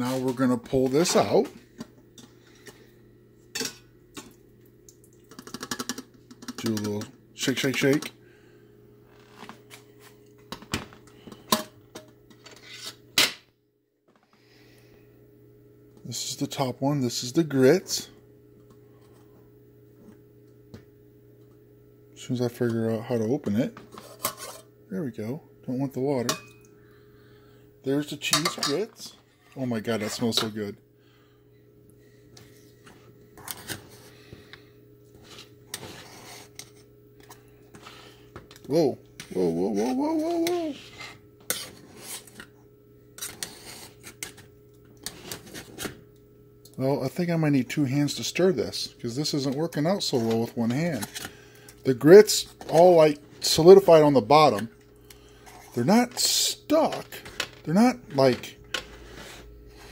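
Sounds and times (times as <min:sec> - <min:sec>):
steady low hum: 0:00.0 - 0:59.9
metal pans clinking and clanking: 0:28.2 - 0:29.0.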